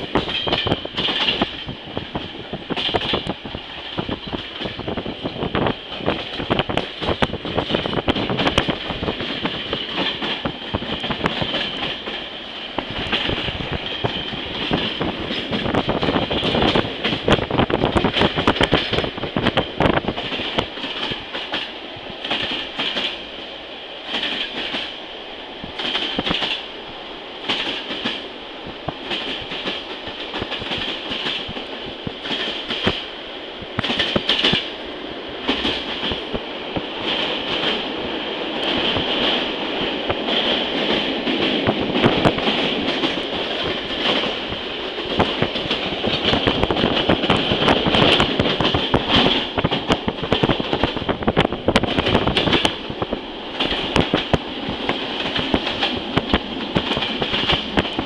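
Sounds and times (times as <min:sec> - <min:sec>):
train wheels clattering: 0:00.0 - 0:23.3, 0:24.0 - 0:25.0, 0:25.7 - 0:26.7, 0:27.4 - 0:28.3, 0:28.9 - 0:33.1, 0:33.8 - 0:34.8, 0:35.4 - 0:58.0.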